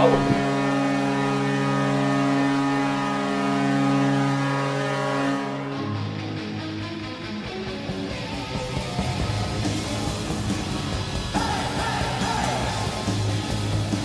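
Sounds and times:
goal horn sustained chord: 0.0 - 6.3
rock music: 0.0 - 14.0.

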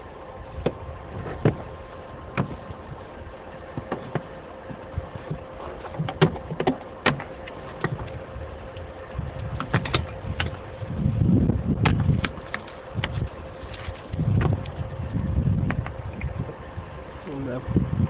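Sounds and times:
faint steady hum: 0.0 - 18.0
knocks on snowy metal body: 5.3 - 8.1.

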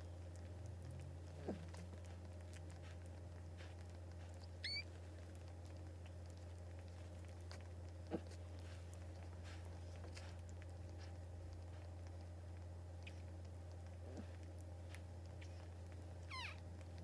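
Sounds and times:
steady low hum: 0.0 - 17.0
puppy squeak: 4.6 - 4.9, 16.3 - 16.6.

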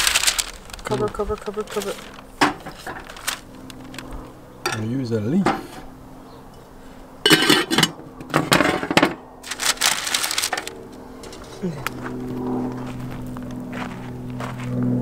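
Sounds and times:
rustle: 0.0 - 4.1, 9.4 - 11.6
metal lid clanking on saucepan: 7.2 - 9.2.

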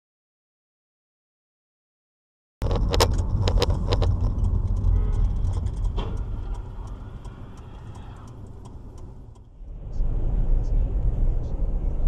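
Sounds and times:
car driving rumble: 2.6 - 12.0.

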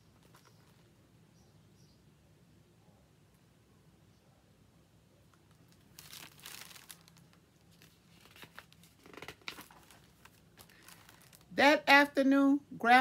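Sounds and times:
paper page rustling and turning: 0.0 - 0.9, 5.5 - 11.5.

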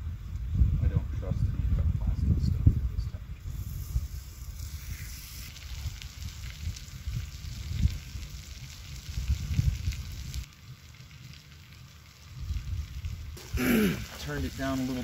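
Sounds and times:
wind rumble on microphone: 0.0 - 10.6, 12.2 - 14.5
steak sizzling in a frying pan: 3.8 - 15.0.

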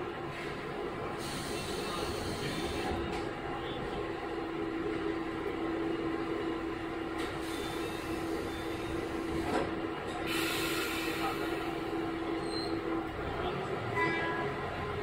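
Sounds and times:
diesel railcar engine hum: 0.0 - 15.0.

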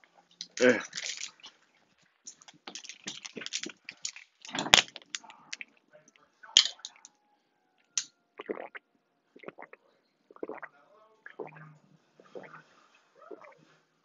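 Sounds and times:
bottle cap cracking: 0.4 - 1.5, 2.3 - 5.7, 6.5 - 7.1
plastic bottle crinkling: 0.4 - 1.6, 2.2 - 5.7, 6.6 - 7.1.

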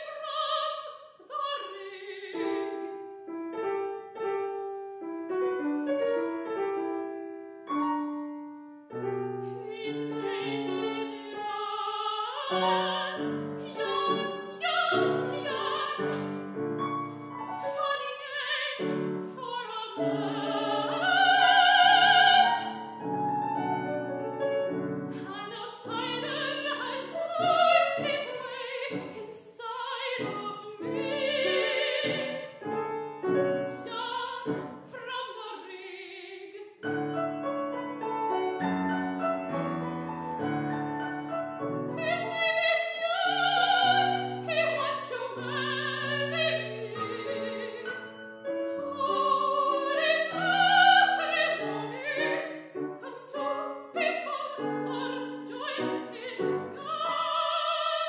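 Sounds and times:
operatic soprano singing: 0.0 - 2.9, 9.5 - 16.4, 17.5 - 23.8, 25.0 - 36.8, 41.9 - 58.0
grand piano: 0.0 - 58.0.

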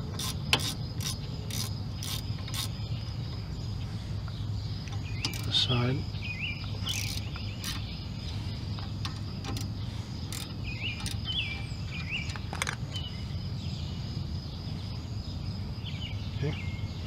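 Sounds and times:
birds chirping: 0.0 - 17.0
insects buzzing: 0.0 - 17.0.

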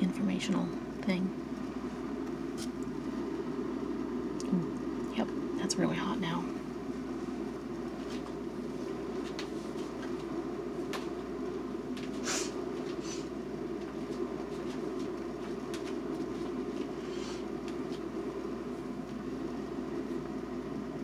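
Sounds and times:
kettle heating water rumble: 0.0 - 21.0.

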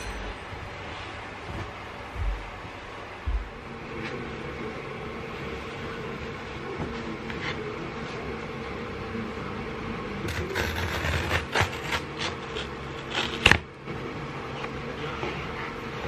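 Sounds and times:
low hum: 0.0 - 6.6.

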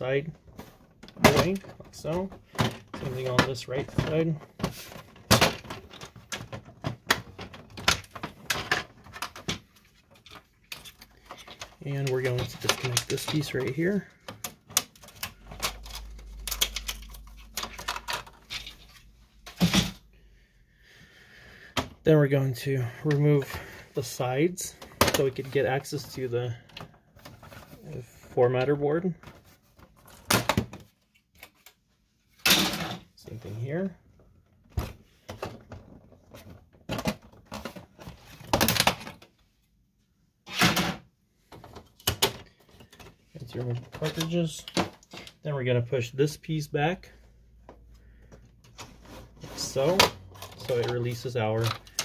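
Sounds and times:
plastic clicks and rattles: 5.2 - 18.8, 49.9 - 52.0.

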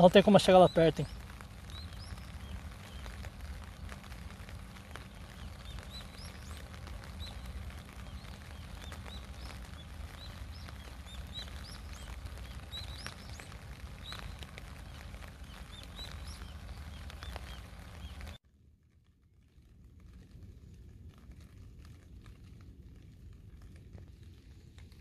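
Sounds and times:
small birds chirping: 0.0 - 18.4.

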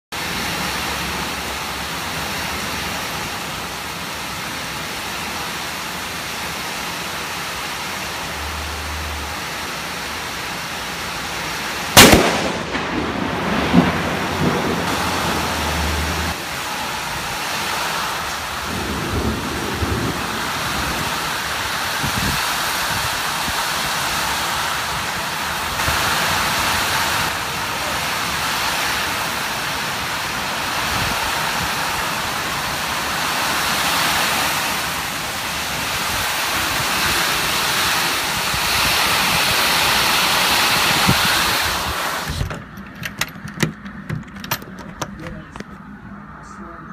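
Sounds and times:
heavy rain falling: 0.1 - 42.8
loud thunderclap: 12.0 - 16.4, 18.5 - 23.1
rumbling thunder: 12.0 - 16.4, 18.5 - 22.3.

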